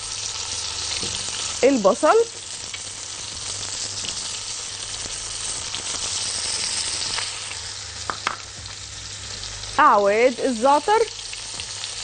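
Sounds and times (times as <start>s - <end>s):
chicken sizzling in hot fat: 0.0s - 12.0s.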